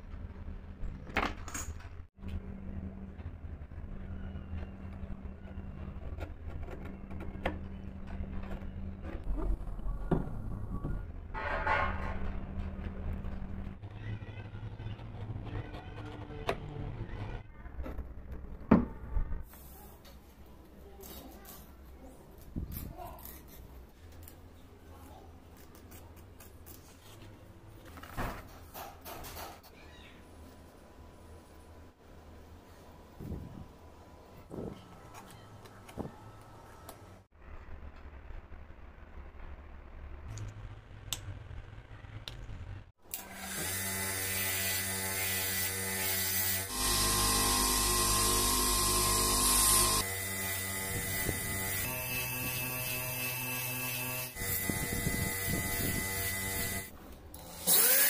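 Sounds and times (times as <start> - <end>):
bench grinder polishing wheel humming: 43.1 - 56.9.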